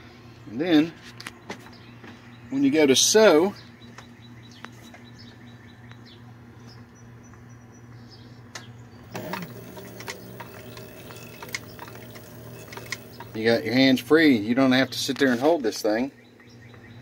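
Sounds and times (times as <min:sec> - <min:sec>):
bobbin winder spinning: 0:09.1 - 0:13.8
sewing machine motor humming: 0:09.1 - 0:14.0.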